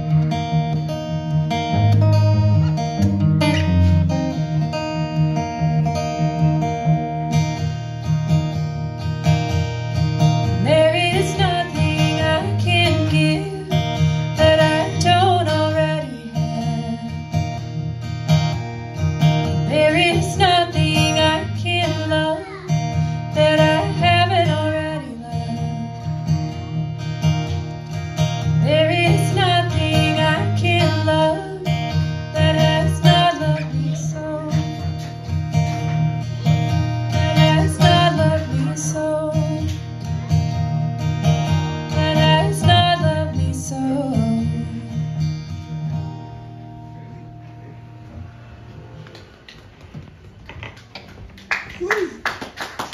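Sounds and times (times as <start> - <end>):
acoustic guitar strumming: 0.0 - 51.4
woman singing: 10.5 - 17.4, 19.6 - 22.5, 23.2 - 26.2, 28.6 - 34.9, 37.0 - 39.8, 41.9 - 45.2.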